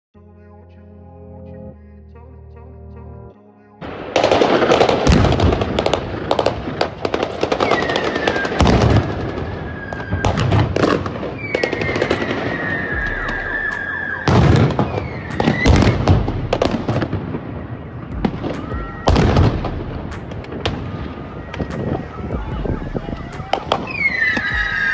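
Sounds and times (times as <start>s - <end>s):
grenades bursting with sharp bangs: 3.8s - 24.9s
loud blasts: 3.8s - 24.9s
long shrill falling tones: 11.4s - 15.7s, 21.2s - 24.9s.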